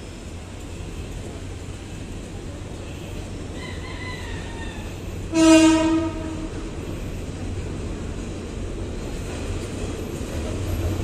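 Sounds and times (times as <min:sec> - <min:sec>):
train rumbling: 0:00.0 - 0:11.0
train horn blast: 0:05.3 - 0:06.7.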